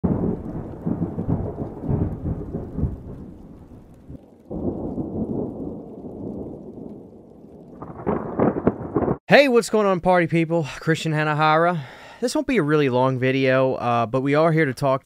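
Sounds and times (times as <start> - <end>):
rolling thunder: 0.0 - 9.2.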